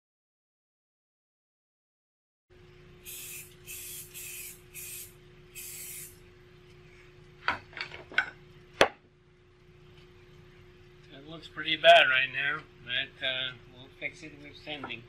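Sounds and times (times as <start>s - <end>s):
spray bottle hissing: 3.0s - 6.2s.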